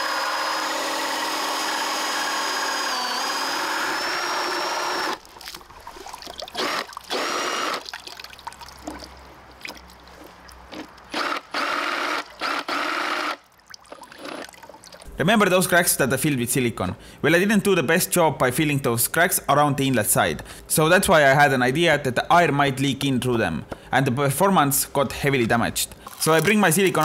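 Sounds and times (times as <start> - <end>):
cordless drill whining: 0.0 - 5.2, 6.6 - 7.8, 10.7 - 13.4
water trickling: 5.2 - 11.1, 13.4 - 15.1.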